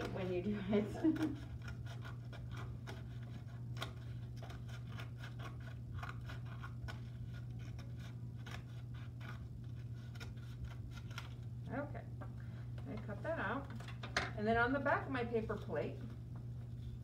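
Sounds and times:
scissors snipping paper: 0:00.0 - 0:11.5.

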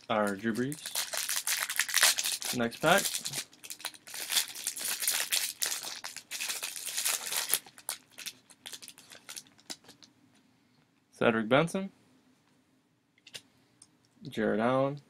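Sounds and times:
foil wrapper crinkling and tearing: 0:00.0 - 0:10.0.

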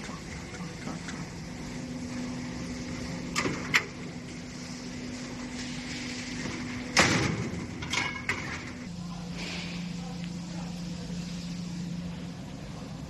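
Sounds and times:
steady hum: 0:00.0 - 0:13.0
rattling metallic clank: 0:06.5 - 0:08.9.

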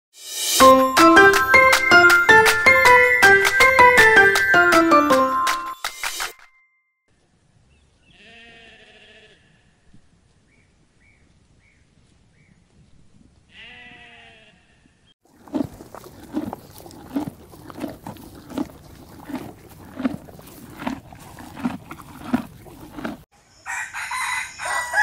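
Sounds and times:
sheep bleating: 0:08.1 - 0:09.8, 0:13.5 - 0:14.9.

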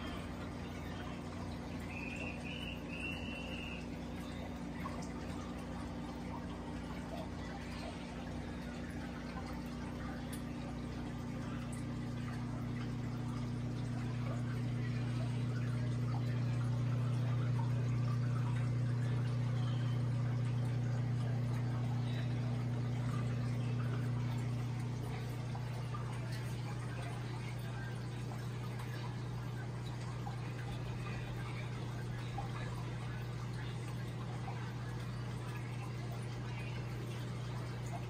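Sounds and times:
aquarium pump hum: 0:00.0 - 0:38.0
water trickling and gurgling: 0:00.0 - 0:38.0.

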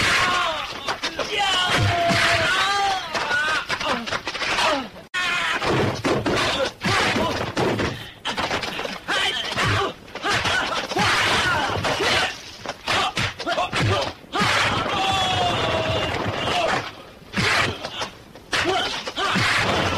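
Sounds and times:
punch and kick impacts: 0:18.5 - 0:19.9.

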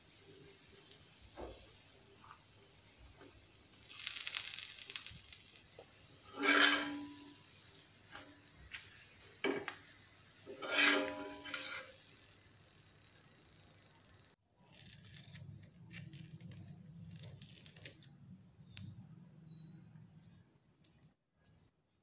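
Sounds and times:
metallic ring of spatula: 0:06.2 - 0:07.4, 0:10.5 - 0:12.1
metal spatula scraping griddle: 0:06.2 - 0:07.5, 0:10.4 - 0:12.0
steel spoon scratching griddle: 0:06.2 - 0:09.7, 0:10.4 - 0:12.2.

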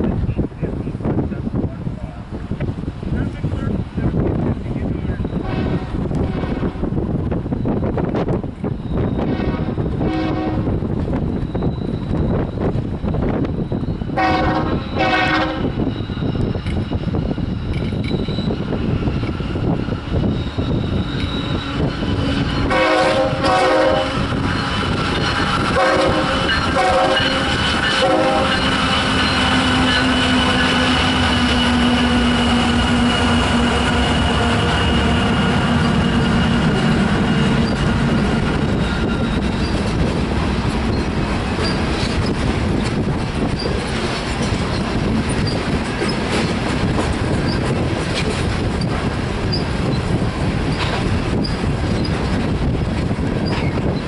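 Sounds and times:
locomotive horn blasts: 0:05.4 - 0:06.9, 0:09.2 - 0:10.8, 0:14.2 - 0:15.9, 0:22.6 - 0:24.4, 0:25.6 - 0:34.6
train wheels clacking on rail joints: 0:07.3 - 0:54.0.

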